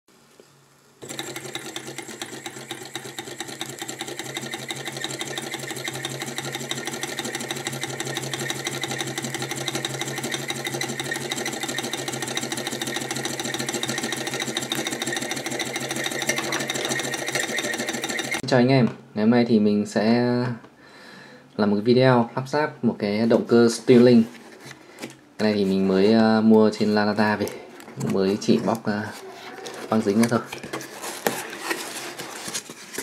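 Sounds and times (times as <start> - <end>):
small engine mechanical clatter: 1.0 - 18.4.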